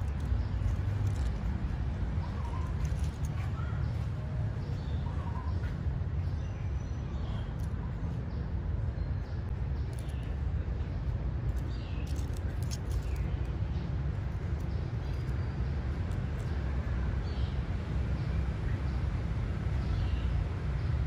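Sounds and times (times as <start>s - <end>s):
low outdoor rumble: 0.0s - 21.0s.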